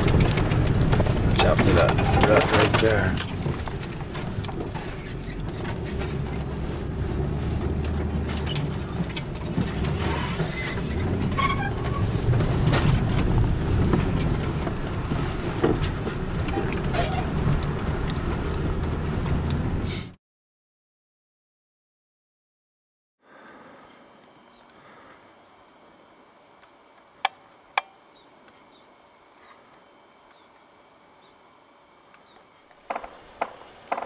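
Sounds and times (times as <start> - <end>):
small rattles and knocks: 0.0 - 19.6, 32.8 - 34.0
car engine and road rumble: 0.0 - 20.2.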